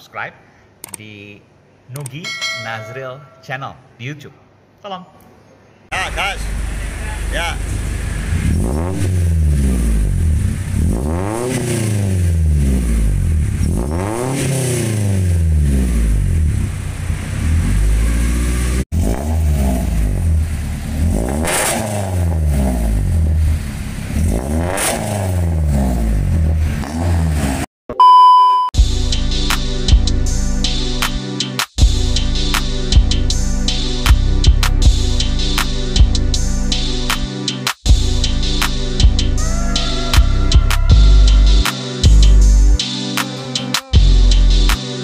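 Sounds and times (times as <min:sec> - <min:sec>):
car engine revving: 0:06.0 - 0:27.7.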